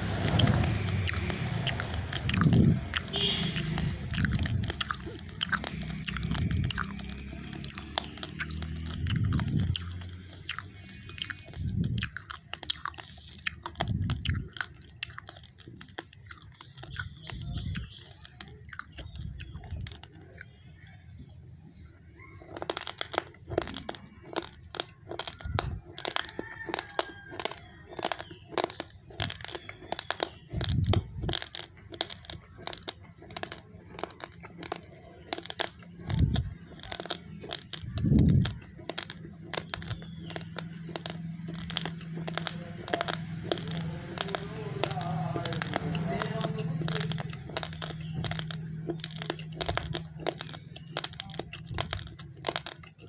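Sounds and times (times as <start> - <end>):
rice grains being chewed: 0.0 - 53.0.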